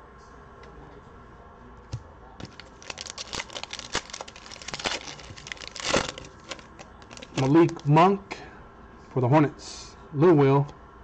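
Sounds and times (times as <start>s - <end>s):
foil wrapper crinkling and tearing: 2.4s - 7.9s.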